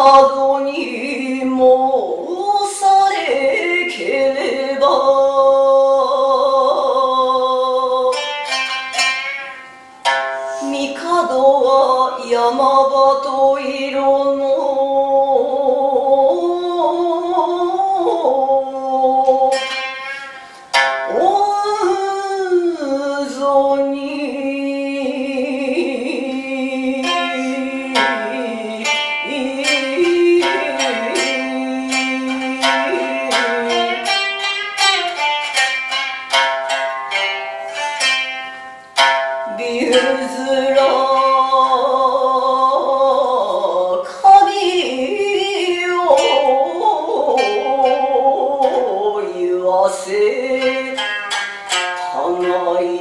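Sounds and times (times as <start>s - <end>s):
lute plucked with plectrum: 7.6s - 13.2s, 15.3s - 22.8s, 25.0s - 44.0s, 45.9s - 53.0s.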